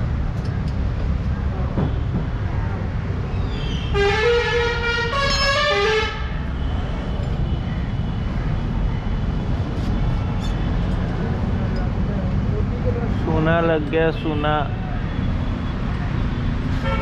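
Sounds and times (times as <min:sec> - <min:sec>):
low rumble of street traffic: 0:00.0 - 0:17.0
vehicle horn: 0:03.9 - 0:06.4, 0:16.8 - 0:17.0.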